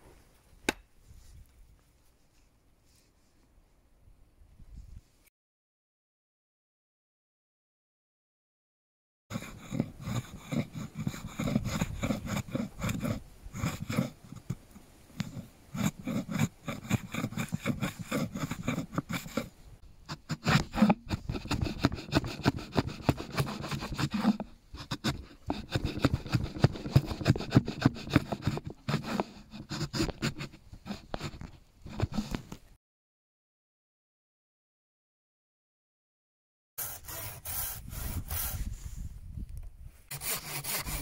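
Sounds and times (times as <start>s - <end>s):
blade shaving wood: 9.3s - 14.6s, 15.2s - 19.5s, 20.1s - 32.3s, 36.8s - 38.7s, 40.1s - 41.0s.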